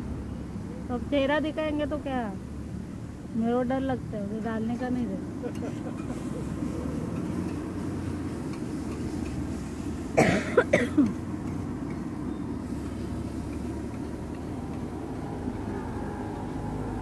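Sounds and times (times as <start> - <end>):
street traffic hum: 0.0 - 17.0
person coughing: 10.2 - 11.2.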